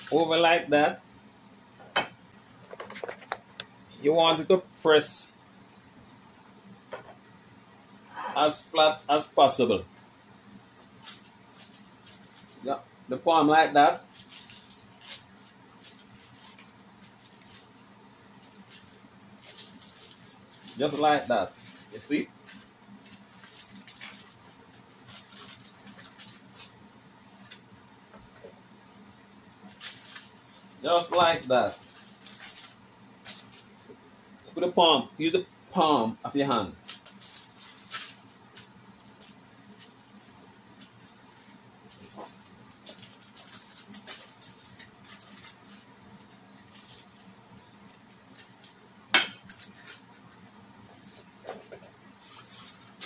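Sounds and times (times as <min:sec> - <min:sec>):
aluminium foil crinkling: 0:00.0 - 0:00.4, 0:11.0 - 0:12.7, 0:13.8 - 0:27.7, 0:29.6 - 0:33.9, 0:36.8 - 0:53.0.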